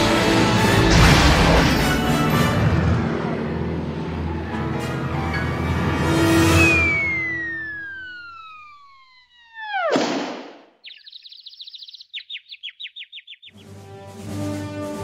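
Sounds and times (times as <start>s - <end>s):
loud crash of impact: 0.8s - 3.2s
cartoon falling whistle: 6.3s - 11.0s
quick high chirps: 6.6s - 13.6s.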